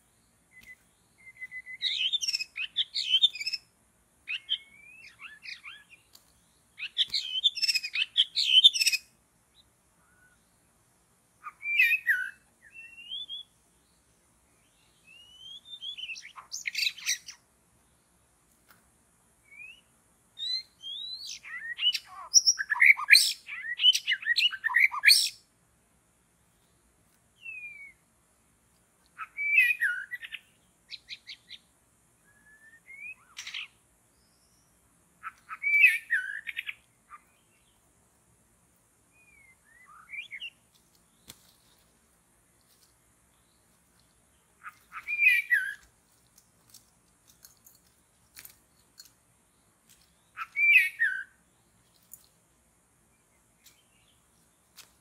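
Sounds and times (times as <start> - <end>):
bird whistles and chirps: 0.5 - 3.6, 4.3 - 6.0, 6.8 - 9.1, 11.4 - 13.5, 15.1 - 17.4, 19.5 - 25.4, 27.4 - 28.0, 29.2 - 31.6, 32.3 - 33.8, 35.2 - 36.8, 39.2 - 40.6, 44.6 - 45.8, 50.3 - 51.4.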